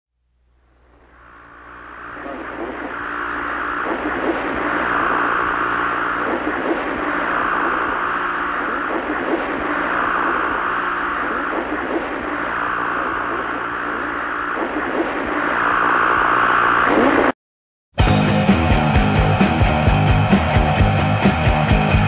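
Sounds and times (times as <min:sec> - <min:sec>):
faint low hum: 0:00.2 - 0:17.3
television static hiss: 0:00.2 - 0:17.4.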